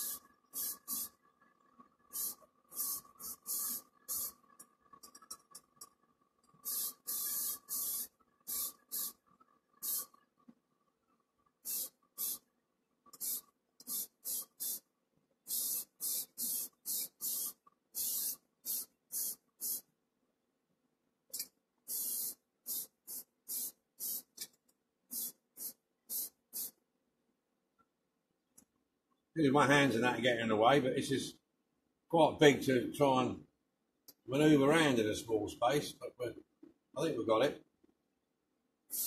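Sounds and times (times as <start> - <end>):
spray paint hissing bursts: 0.0 - 1.2, 2.1 - 4.6, 6.6 - 9.2, 9.8 - 10.2, 11.6 - 12.5, 13.1 - 19.9, 21.3 - 24.5, 25.1 - 26.8.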